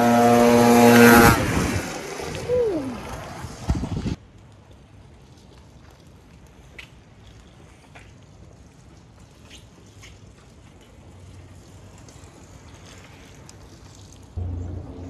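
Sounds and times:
rain on wet pavement: 0.0s - 15.0s
faint low rumble: 14.3s - 15.0s.

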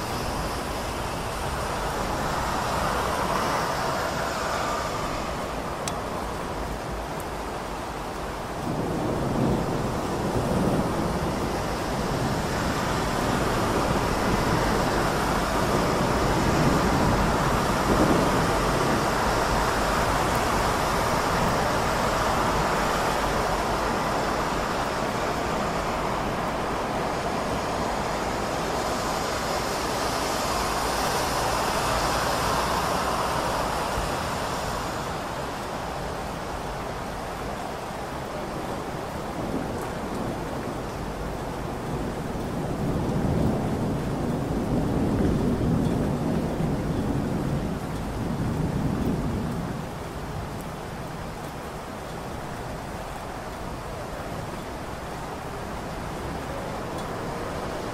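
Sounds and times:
heavy rain: 0.0s - 57.9s
traffic noise: 0.0s - 57.9s
thunder rumbling: 8.3s - 37.4s, 38.0s - 51.8s.

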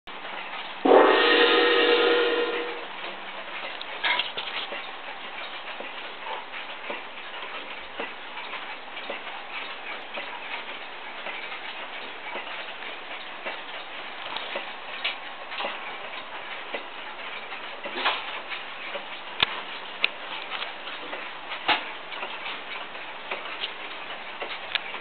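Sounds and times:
clock strike ringing: 0.8s - 3.0s.

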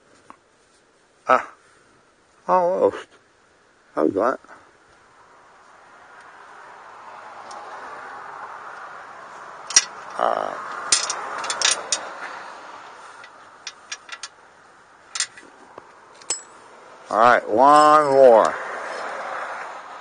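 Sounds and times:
faint background hiss: 0.0s - 19.1s
wrench metallic clicks: 9.7s - 10.2s, 10.9s - 12.1s, 13.2s - 14.4s, 15.1s - 15.4s.

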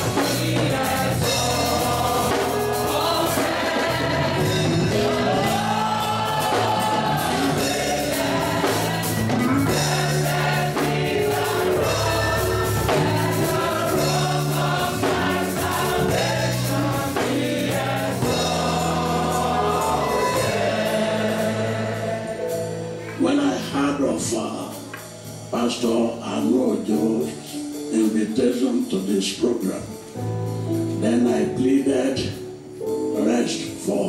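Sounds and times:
gospel choir singing: 0.0s - 24.7s.

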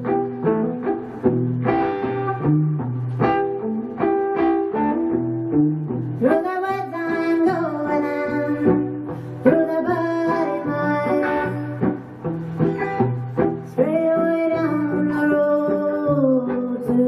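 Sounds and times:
electric guitar melody: 0.0s - 17.0s
woman singing: 6.2s - 12.0s, 13.7s - 17.0s.

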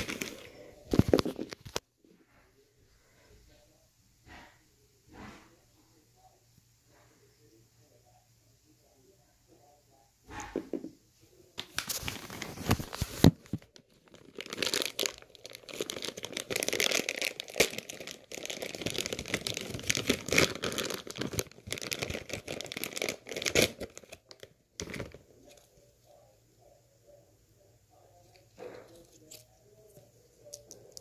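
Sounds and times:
scratchy rustling and crinkling: 0.0s - 1.8s, 11.6s - 25.8s.

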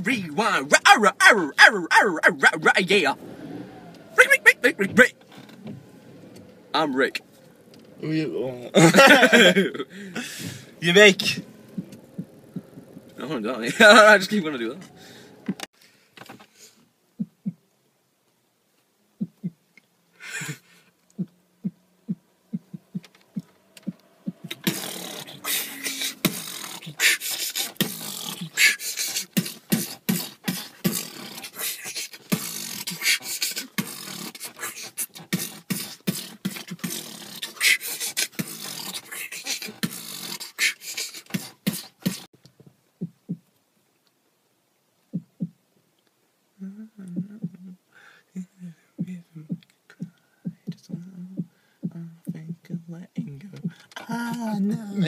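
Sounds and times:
person beatboxing: 19.2s - 19.6s, 21.2s - 42.3s, 46.8s - 47.8s, 49.0s - 55.0s.

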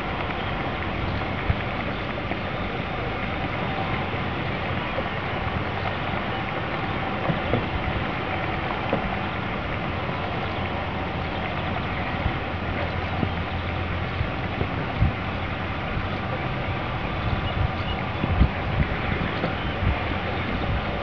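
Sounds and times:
flowing river water: 0.0s - 21.0s.

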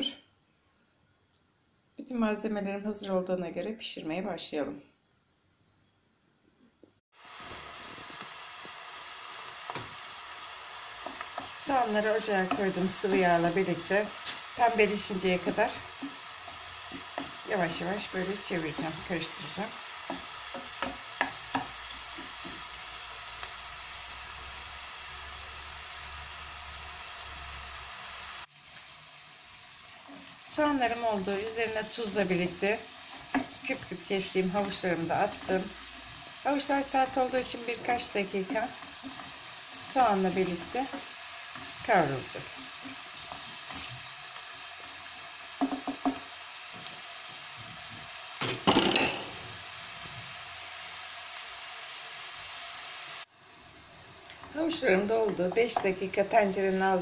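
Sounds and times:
onions sizzling in oil: 7.1s - 57.0s
wooden spoon tapping pot: 20.0s - 21.8s, 45.6s - 46.2s, 55.2s - 56.0s.

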